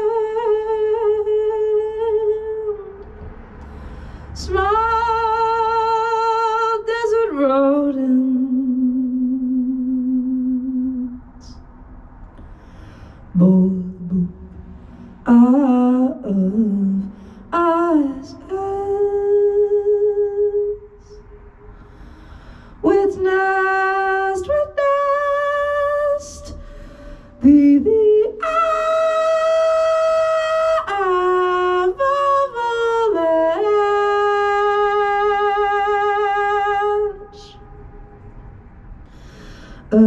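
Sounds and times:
woman singing into microphone: 0.0 - 3.2, 4.3 - 11.6, 13.4 - 14.3, 15.2 - 20.9, 22.8 - 26.6, 27.4 - 37.6.

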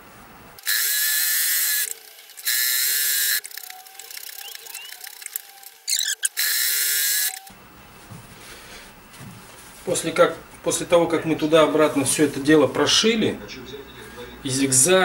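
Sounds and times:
electric sewing machine stitching: 0.6 - 7.5.

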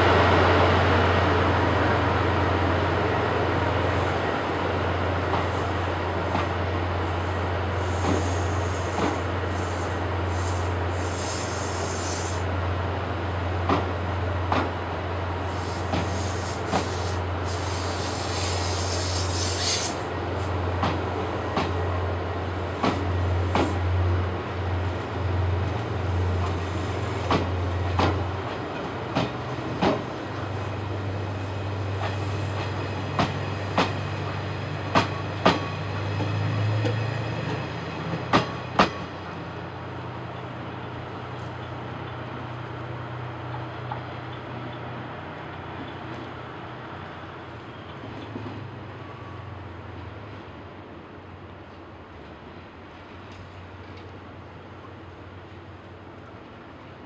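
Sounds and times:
train wheels clacking on rail joints: 7.8 - 9.3, 15.6 - 20.0, 20.7 - 21.8, 22.8 - 23.8, 26.3 - 30.1, 32.0 - 34.1, 34.8 - 39.1
high hiss: 7.8 - 12.5, 15.4 - 20.6.

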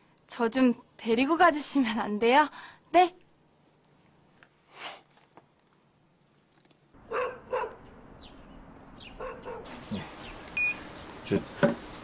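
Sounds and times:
outdoor background noise: 0.0 - 12.0
dog barking: 7.0 - 7.8, 9.2 - 9.8
high falling bird chirps: 7.8 - 11.2.

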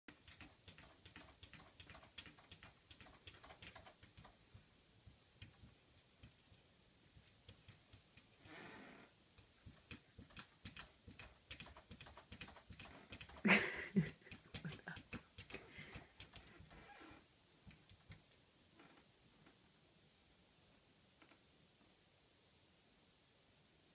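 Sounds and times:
cat claws tapping on glass: 0.1 - 8.4, 9.4 - 16.8.

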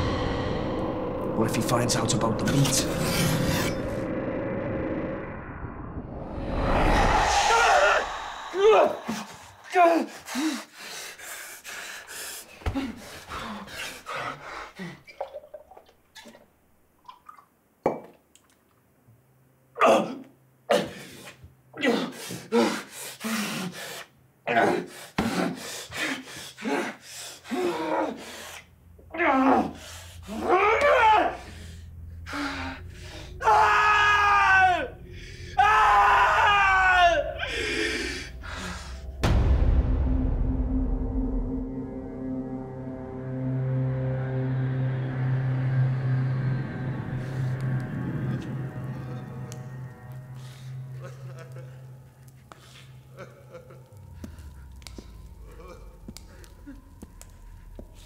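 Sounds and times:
man groaning: 6.9 - 10.3.

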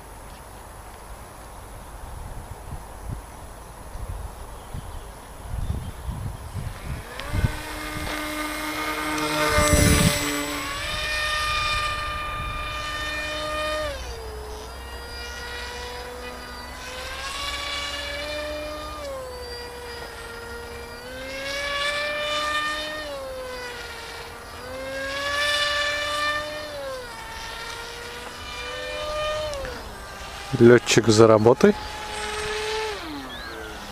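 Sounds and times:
wind rumbling on microphone: 1.7 - 24.0
model plane electric motor whining: 5.5 - 33.9.

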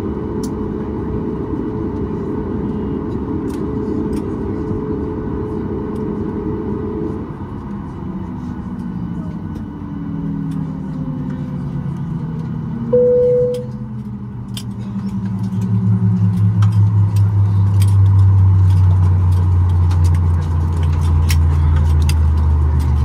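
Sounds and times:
low steady hum: 7.5 - 21.0.

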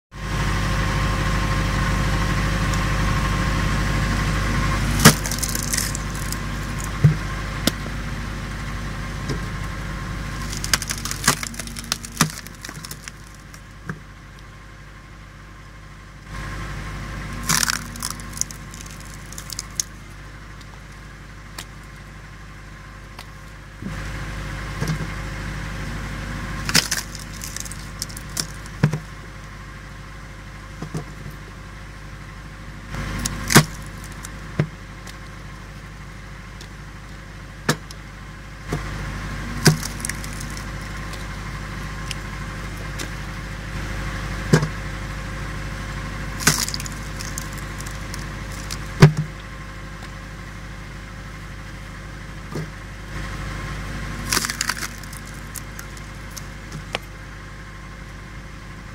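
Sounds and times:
log splitter motor running: 0.1 - 58.9
wood splintering: 4.2 - 14.0, 17.3 - 22.1, 25.9 - 29.5, 33.0 - 35.3, 38.7 - 43.4, 46.2 - 49.4, 54.1 - 57.1
wood cracking loudly: 4.9 - 7.8, 10.3 - 13.7, 17.4 - 20.0, 26.6 - 29.1, 33.2 - 34.4, 39.5 - 41.3, 46.4 - 49.2, 54.2 - 57.1.

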